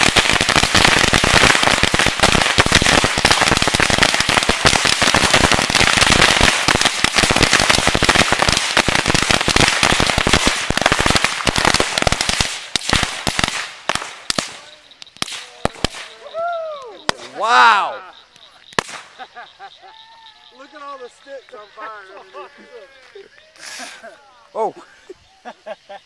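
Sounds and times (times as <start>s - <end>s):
steady hiss of rockets: 0.0s - 17.4s, 18.3s - 19.5s, 23.1s - 25.6s.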